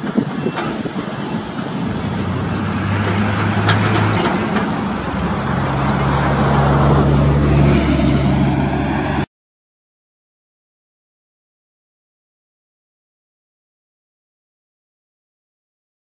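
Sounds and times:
diesel locomotive engine drone: 0:00.0 - 0:09.3
road traffic passing: 0:00.0 - 0:09.3.

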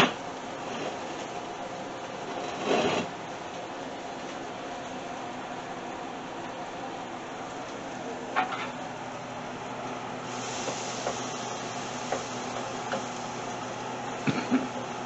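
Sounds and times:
steady hum: 0:00.0 - 0:15.0
butter sizzling in pan: 0:10.2 - 0:15.0.

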